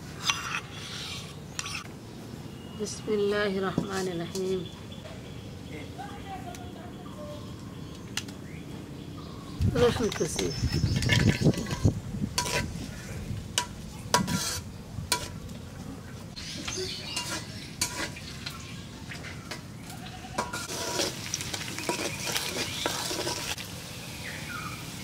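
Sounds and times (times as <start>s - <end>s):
metal utensil scraping a pan: 0.2s - 1.8s, 10.0s - 15.4s, 16.7s - 18.6s, 19.5s - 23.6s
food sizzling in a pan: 17.1s - 18.7s, 20.4s - 25.0s.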